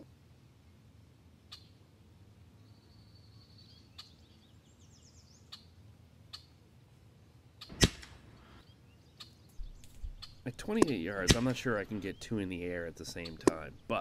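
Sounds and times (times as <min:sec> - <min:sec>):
sharp loud crack: 0:07.7 - 0:08.4, 0:09.9 - 0:11.9.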